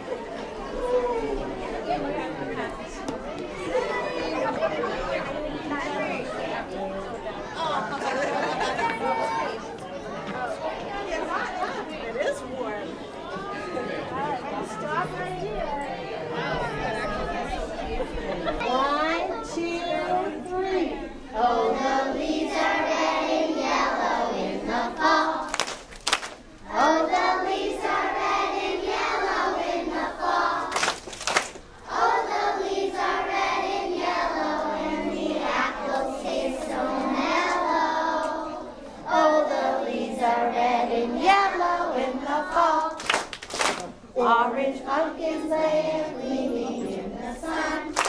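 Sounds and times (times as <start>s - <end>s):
children singing: 21.4s - 25.6s, 26.7s - 30.8s, 31.8s - 43.0s, 44.2s - 48.0s
hand claps: 25.5s - 26.4s, 30.7s - 31.6s, 42.9s - 43.9s.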